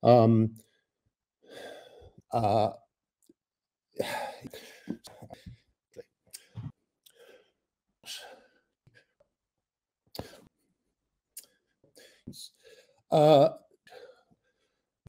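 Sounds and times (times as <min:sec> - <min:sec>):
man talking over video call: 0:00.0 - 0:00.7, 0:02.3 - 0:02.8, 0:12.3 - 0:13.6.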